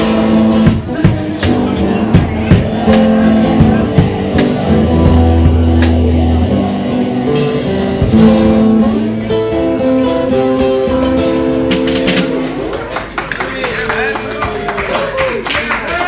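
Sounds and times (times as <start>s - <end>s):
electric guitar playing: 0.0s - 13.2s.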